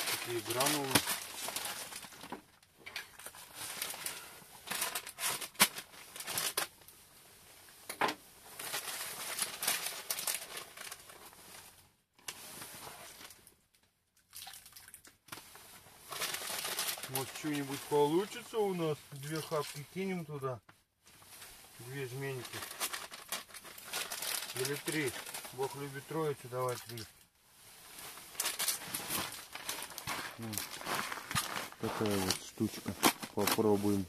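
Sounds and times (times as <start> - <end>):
plastic packet crinkling: 0.0 - 2.4, 3.0 - 6.7, 8.6 - 11.4, 16.1 - 19.8, 21.8 - 27.1, 28.2 - 34.0.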